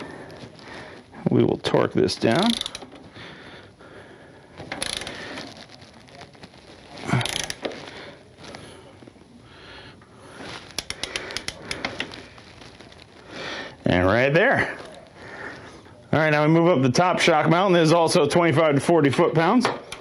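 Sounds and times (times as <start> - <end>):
torque wrench ratchet clicking: 2.4 - 2.9, 4.7 - 5.1, 10.8 - 11.6.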